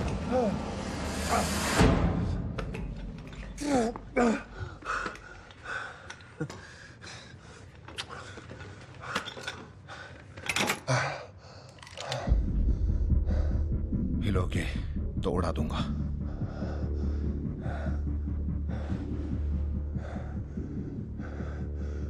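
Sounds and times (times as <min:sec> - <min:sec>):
low rumble: 0:00.0 - 0:04.9, 0:12.3 - 0:22.0
prosthetic leg clicks and clinks: 0:07.5 - 0:11.0.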